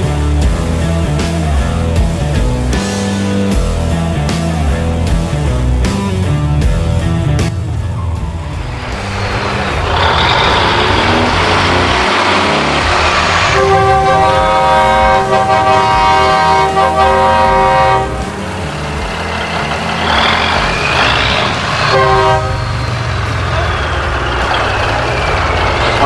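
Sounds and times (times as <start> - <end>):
truck engine running: 0.0 - 26.0
truck horn blasts: 13.4 - 18.5, 20.1 - 23.8.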